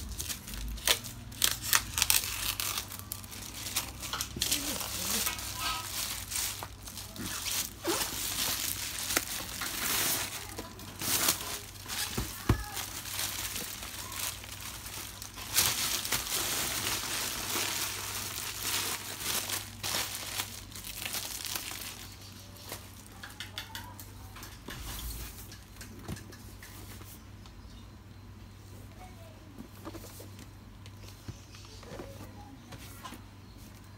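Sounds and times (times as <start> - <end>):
plastic bag crinkling and rustling: 0.0 - 23.2.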